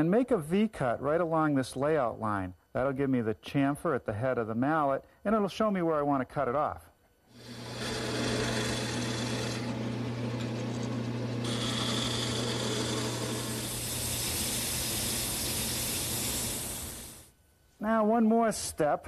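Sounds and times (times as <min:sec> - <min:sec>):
wood lathe motor hum: 0:07.3 - 0:17.3
chisel scraping spinning wood: 0:07.4 - 0:17.2.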